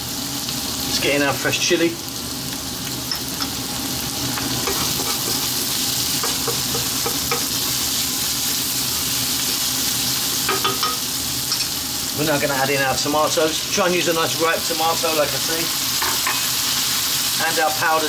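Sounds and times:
onions sizzling in hot oil: 0.0s - 18.0s.

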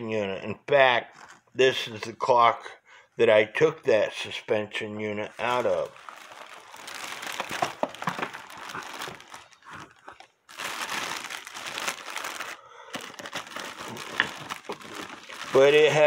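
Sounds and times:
plastic bag crinkling: 5.3s - 16.0s.

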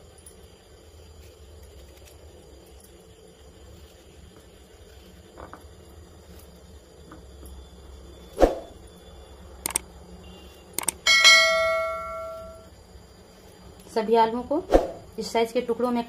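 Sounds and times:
soft clicks: 9.6s - 9.9s, 10.8s - 11.0s
notification bell chime: 11.1s - 12.6s.

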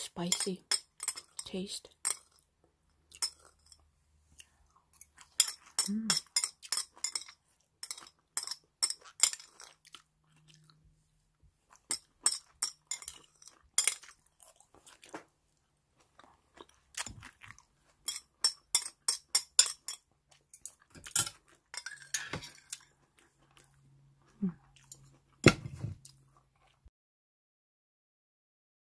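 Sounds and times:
crunchy chewing: 9.0s - 10.8s, 11.7s - 15.3s, 16.0s - 18.4s, 22.6s - 25.4s.

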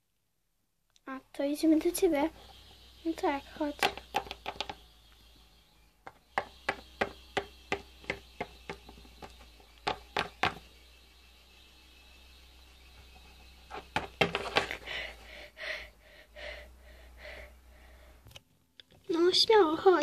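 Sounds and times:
plastic toys tapping on floor: 3.8s - 4.8s, 6.0s - 10.7s, 13.7s - 14.8s.

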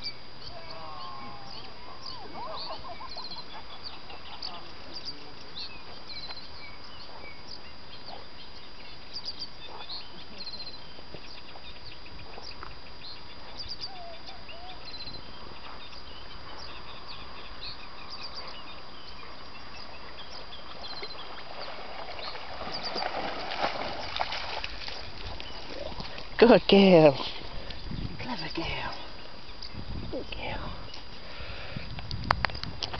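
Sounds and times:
low wavering bird calls: 0.0s - 23.2s
small birds chirping: 0.0s - 23.2s, 23.9s - 32.7s.

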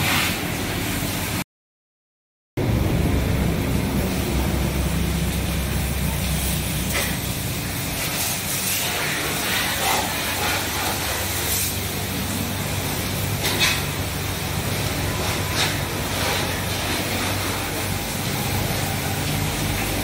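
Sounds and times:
pressure washer spray splashing: 0.0s - 1.4s, 2.7s - 20.0s
low hum: 2.6s - 8.1s.

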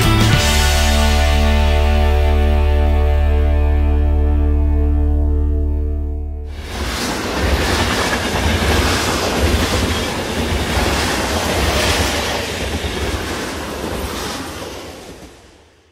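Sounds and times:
train rumbling on tracks: 6.5s - 15.9s.

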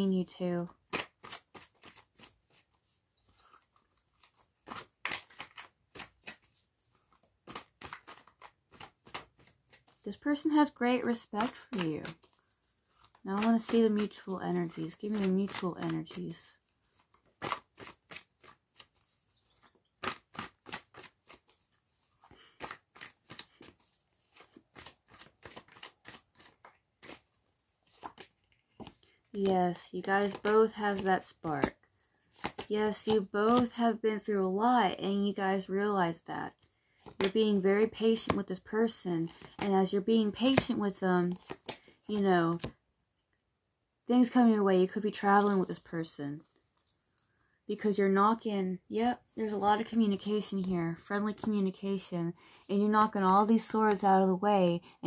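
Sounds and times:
cards being shuffled: 0.6s - 33.8s, 36.5s - 42.8s, 44.9s - 48.0s.

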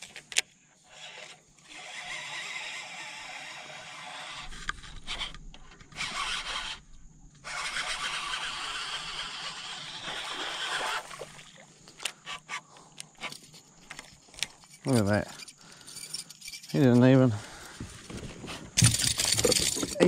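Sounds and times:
fishing reel whirring: 0.8s - 12.6s, 18.8s - 20.0s.

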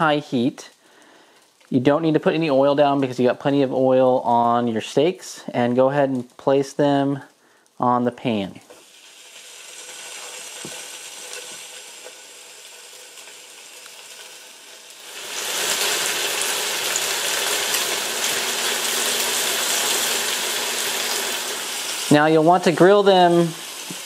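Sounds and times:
fish sizzling in a pan: 8.7s - 24.0s.

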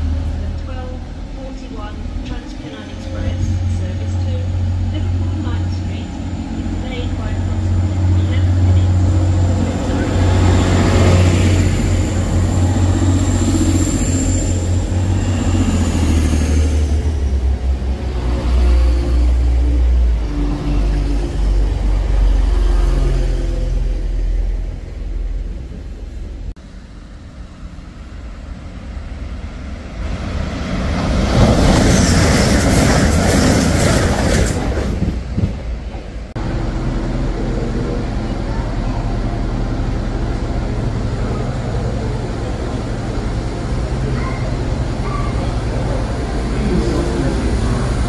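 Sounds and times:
deep train engine rumble: 0.0s - 48.0s
train rushing past: 0.0s - 48.0s
steady drone: 36.3s - 48.0s.

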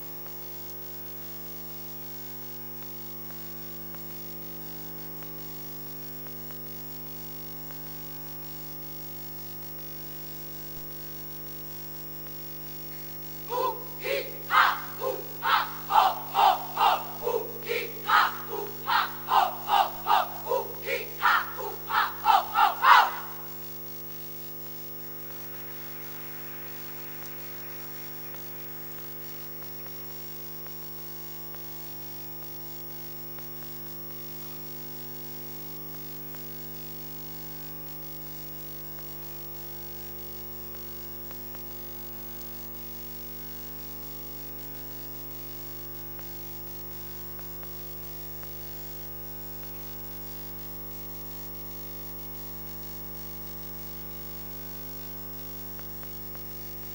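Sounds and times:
electrical mains hum: 2.8s - 56.9s
faint hiss: 23.1s - 33.1s.

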